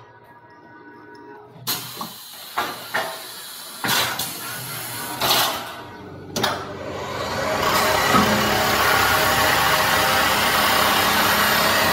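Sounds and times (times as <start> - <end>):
machine running steadily: 0.0 - 11.9
pneumatic air hisses: 1.7 - 5.2.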